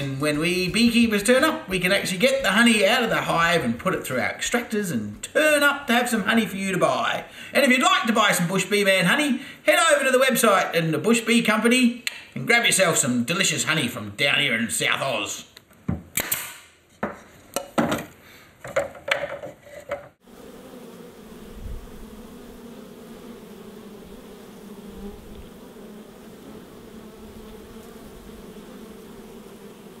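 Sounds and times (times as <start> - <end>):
honeybees buzzing: 0.0 - 8.9, 20.2 - 30.0
nail gun firing into wood: 16.1 - 16.7.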